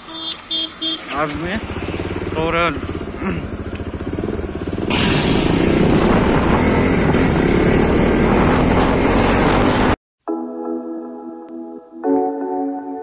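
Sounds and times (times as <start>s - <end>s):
motorcycle engine: 0.0s - 10.0s
wind rushing over microphone: 5.2s - 10.0s.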